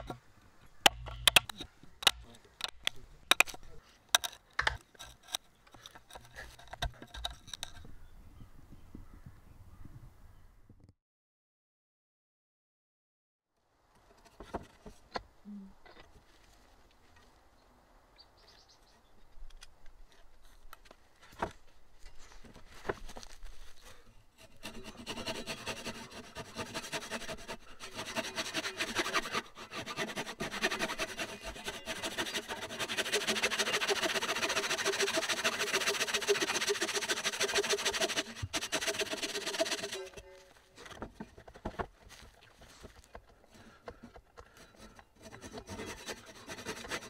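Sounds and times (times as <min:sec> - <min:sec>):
saw rasping through wood: 0:24.4 - 0:40.2, 0:43.8 - 0:47.0.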